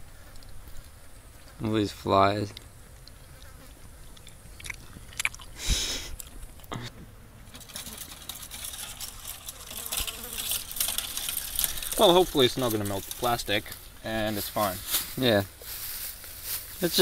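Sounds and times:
rustling and crinkling handling: 7.5s - 17.0s.

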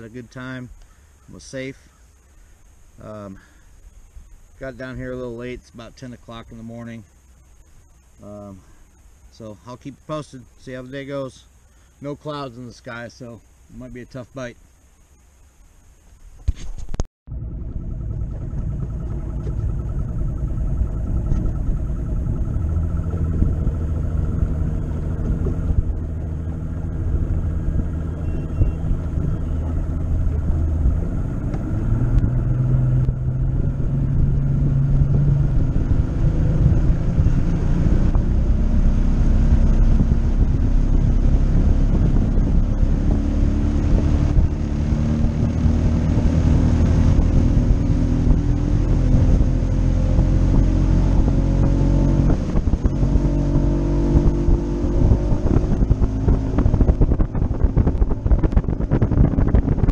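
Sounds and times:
outboard motor running: 17.3s - 59.9s.

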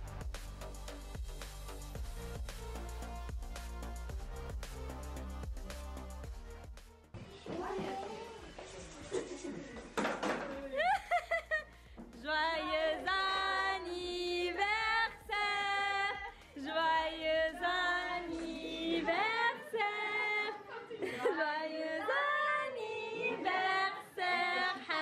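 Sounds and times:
group singing: 12.3s - 25.0s.

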